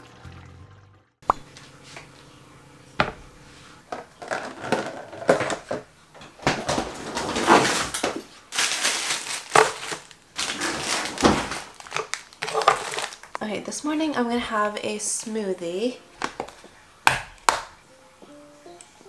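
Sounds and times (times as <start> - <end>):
knocks on wooden cutting board: 3.0 - 3.2
plastic packaging crinkling: 6.7 - 13.4.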